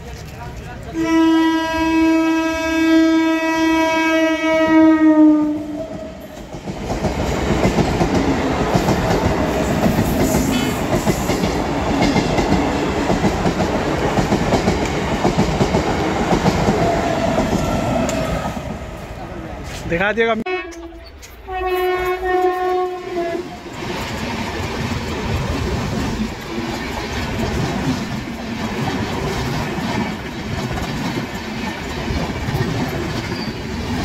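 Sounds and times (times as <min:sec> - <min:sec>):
train horn: 0:00.9 - 0:06.2, 0:20.4 - 0:23.6
train wheels rattling on rails: 0:05.7 - 0:34.0.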